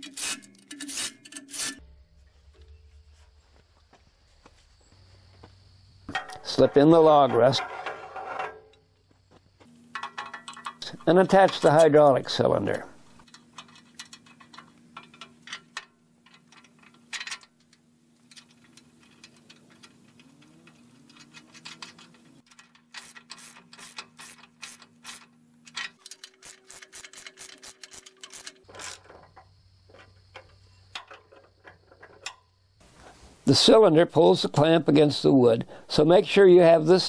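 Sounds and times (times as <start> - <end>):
ratchet wrench clicking: 0.0 - 1.8, 18.3 - 25.3, 25.9 - 29.0
metal tools clinking: 0.0 - 1.9, 6.1 - 8.9, 9.9 - 32.5.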